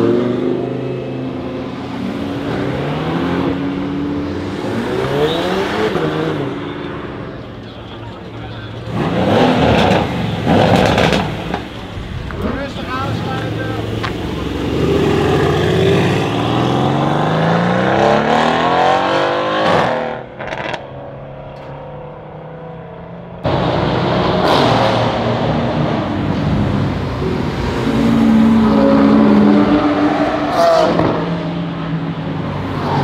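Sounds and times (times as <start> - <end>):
engine revving: 13.2 - 20.8.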